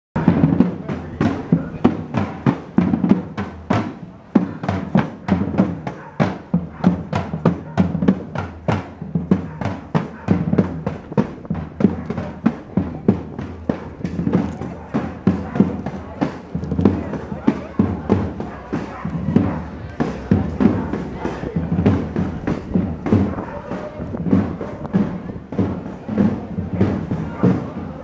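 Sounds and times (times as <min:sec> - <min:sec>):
crowd voices: 0:00.2 - 0:28.0.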